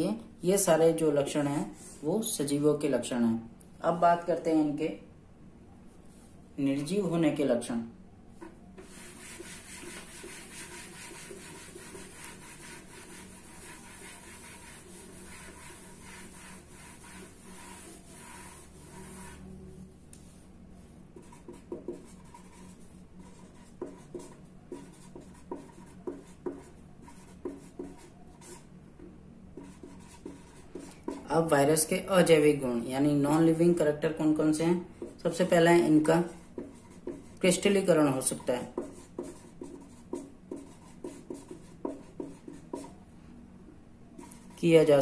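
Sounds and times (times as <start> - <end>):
marker writing on board: 8.4 - 19.4, 21.2 - 31.4, 35.0 - 43.0
board being wiped: 8.8 - 19.4.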